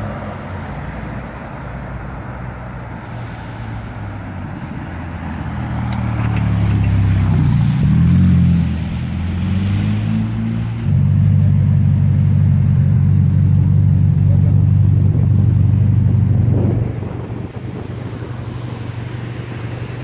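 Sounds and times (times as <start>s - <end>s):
car engine running: 11.0s - 20.0s.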